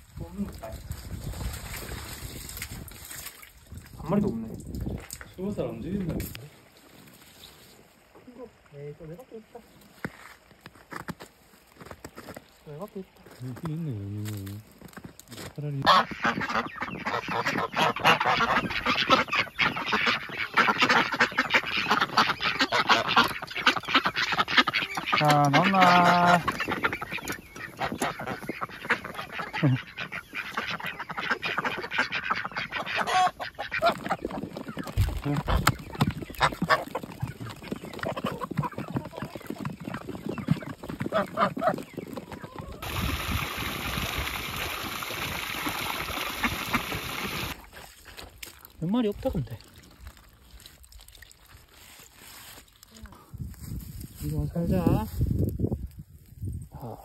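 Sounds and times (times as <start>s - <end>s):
hose water splashing into basin: 0.4s - 7.4s, 42.8s - 52.4s
birds pecking: 14.7s - 53.2s
ducks quacking: 15.7s - 47.7s
geese honking: 15.8s - 39.4s, 40.3s - 47.6s.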